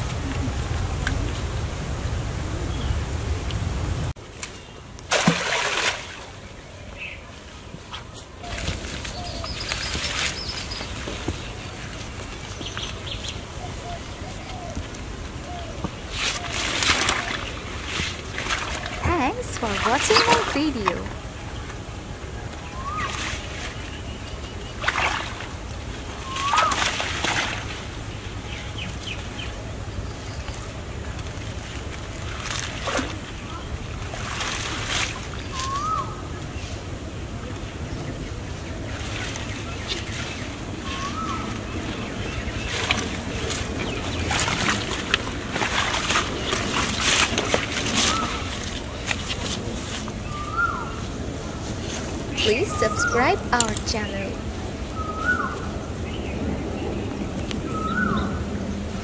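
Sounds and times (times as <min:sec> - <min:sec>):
pond water splash: 0:04.2 - 0:06.9, 0:07.8 - 0:13.4, 0:15.9 - 0:21.2, 0:22.7 - 0:29.7, 0:30.5 - 0:36.5, 0:38.4 - 0:50.8.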